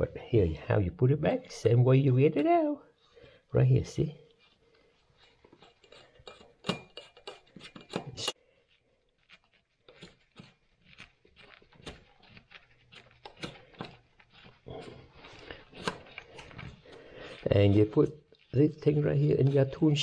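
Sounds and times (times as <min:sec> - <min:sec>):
tools clicking and knocking: 0:05.4 - 0:08.4, 0:11.4 - 0:17.4.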